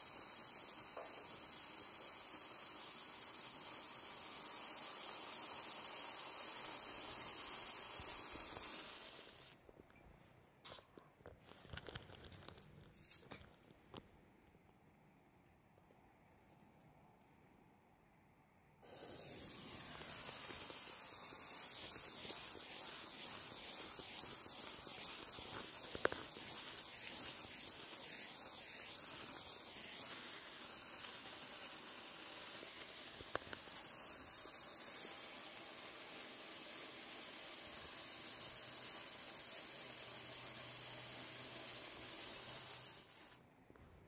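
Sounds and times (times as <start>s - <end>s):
sparkler burning with hiss: 0.0s - 9.6s, 10.6s - 11.0s, 18.8s - 43.5s
sparkler crackles: 0.0s - 9.6s, 18.8s - 43.5s.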